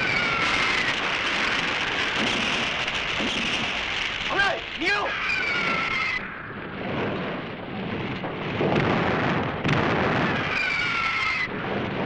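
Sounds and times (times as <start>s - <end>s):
rumbling explosion-like effects: 0.0s - 12.0s
falling whistling tone: 5.1s - 6.5s.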